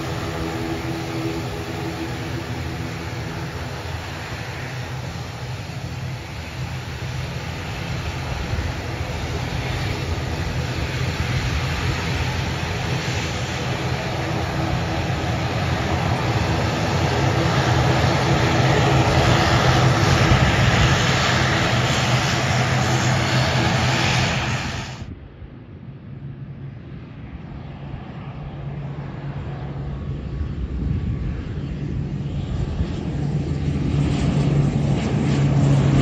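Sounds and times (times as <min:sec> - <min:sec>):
turboprop engines droning: 0:00.0 - 0:36.0.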